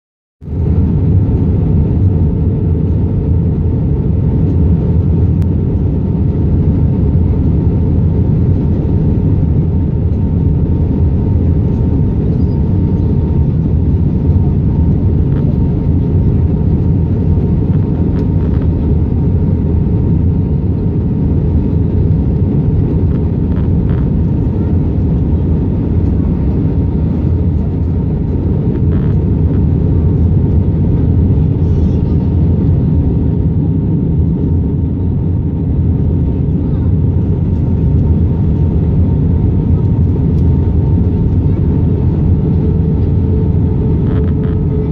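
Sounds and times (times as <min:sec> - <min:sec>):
jet engine and airflow roar: 0:00.4 - 0:44.9.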